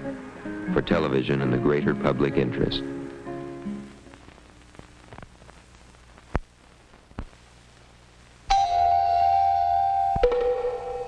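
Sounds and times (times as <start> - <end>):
film soundtrack hiss and hum: 0.0 - 11.0.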